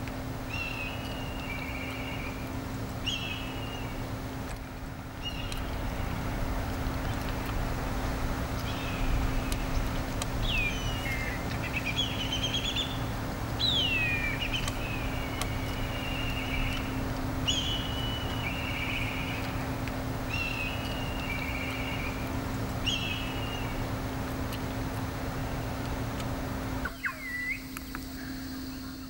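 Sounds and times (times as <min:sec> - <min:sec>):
steady low hum: 0:00.0 - 0:29.0
kite whistling call with trill: 0:26.9 - 0:29.0.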